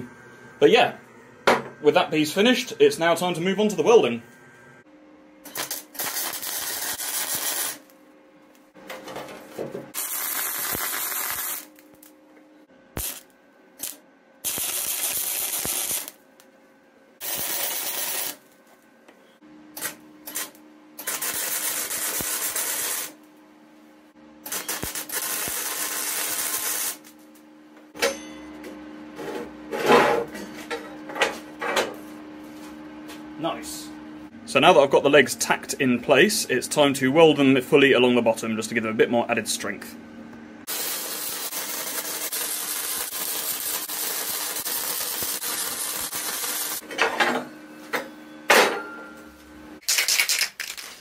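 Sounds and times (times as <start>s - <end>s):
welder arc crackling and hissing: 0.0s - 8.7s, 9.9s - 12.2s, 12.9s - 16.5s, 17.2s - 18.8s, 19.8s - 23.2s, 24.4s - 27.4s, 40.6s - 46.8s.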